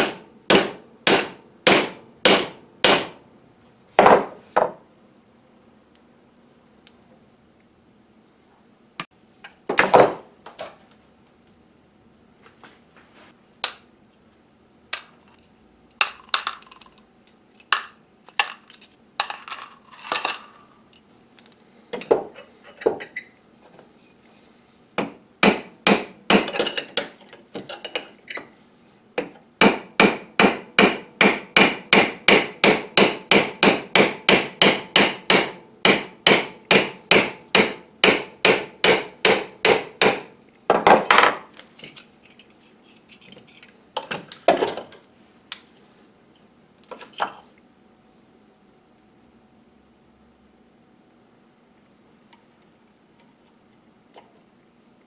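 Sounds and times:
hammer striking metal punch: 0:00.0 - 0:03.3, 0:25.0 - 0:26.8, 0:29.2 - 0:41.1.

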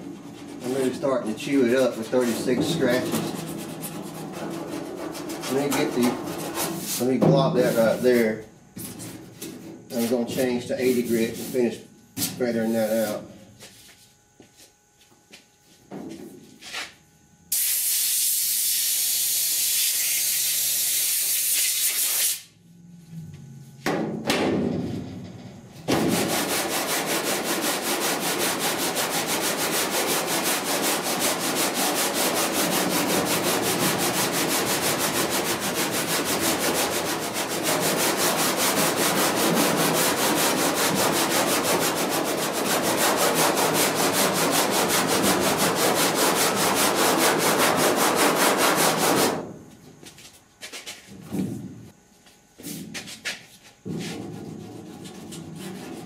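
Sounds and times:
sandpaper rubbing on metal panel: 0:00.0 - 0:14.0, 0:16.5 - 0:22.5, 0:25.9 - 0:49.5, 0:52.6 - 0:56.0
steady hiss: 0:05.4 - 0:13.2.

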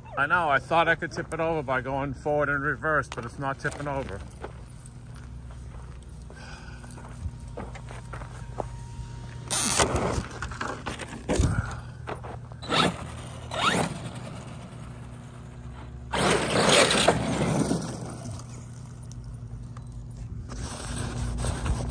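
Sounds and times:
rc truck motor whining: 0:08.8 - 0:10.6, 0:12.6 - 0:21.9
tyres scrabbling in dirt: 0:09.5 - 0:14.8, 0:15.6 - 0:20.9.

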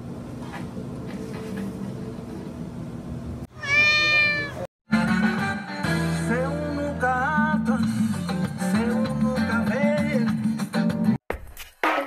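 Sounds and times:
cat meowing: 0:03.5 - 0:04.7.

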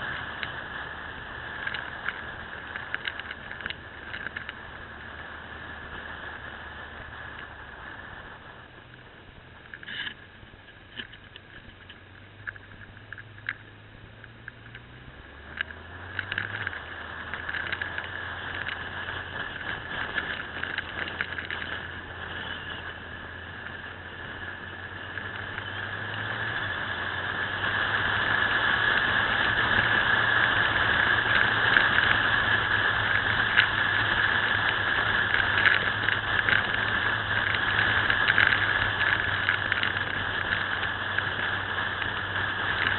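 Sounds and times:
motorcycle engine running: 0:00.0 - 0:42.9
road noise: 0:00.0 - 0:42.9
rushing wind: 0:14.6 - 0:42.9.

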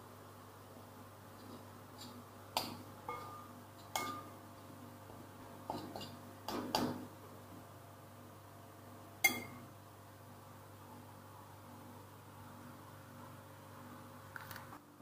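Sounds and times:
bowls and utensils clinking: 0:02.0 - 0:04.4, 0:05.7 - 0:06.9, 0:09.2 - 0:09.6.

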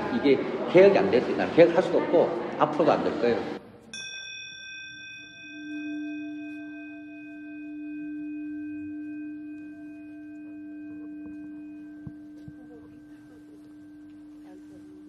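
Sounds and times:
steady low tone: 0:02.0 - 0:15.0
high ringing tones: 0:03.9 - 0:15.0.

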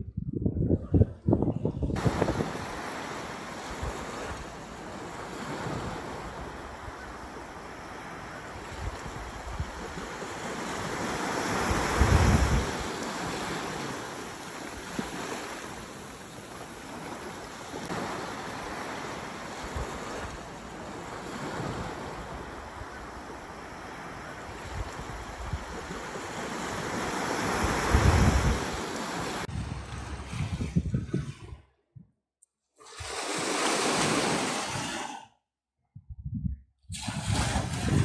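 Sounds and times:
wind on microphone: 0:00.0 - 0:04.5, 0:08.5 - 0:13.8, 0:24.1 - 0:32.2, 0:35.8 - 0:38.0
surf washing on beach: 0:02.0 - 0:31.3, 0:32.8 - 0:35.2, 0:37.0 - 0:38.0.

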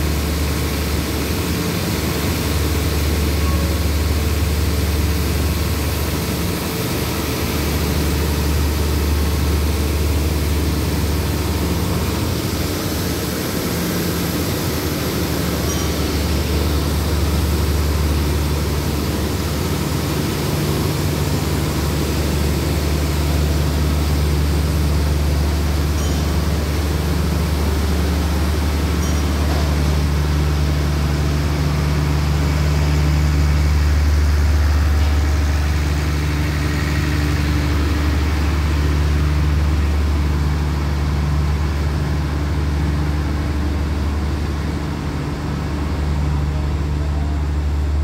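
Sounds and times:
diesel train engine drone: 0:00.0 - 0:48.0.

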